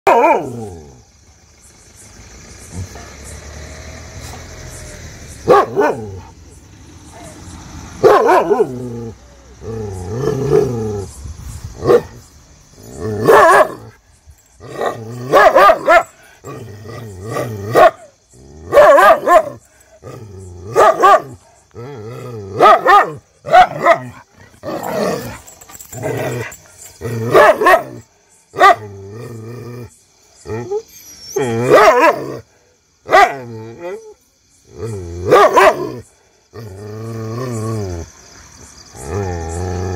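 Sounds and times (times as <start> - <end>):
dog barking: 0.0 - 0.6, 5.4 - 6.3, 8.0 - 8.8, 11.8 - 12.2, 13.2 - 13.8, 14.8 - 16.1, 17.6 - 18.1, 18.7 - 19.6, 20.6 - 21.4, 22.6 - 24.2, 27.3 - 28.0, 28.6 - 28.9, 31.6 - 32.4, 33.1 - 33.4, 35.2 - 36.0
dog growling: 14.6 - 28.0, 34.7 - 38.1, 38.9 - 39.9.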